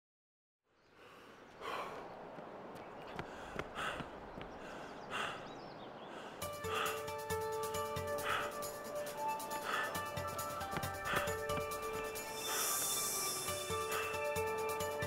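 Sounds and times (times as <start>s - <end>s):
person breathing hard: 1.0s - 2.2s, 3.2s - 15.0s
steady hiss: 6.3s - 15.0s
music: 6.4s - 15.0s.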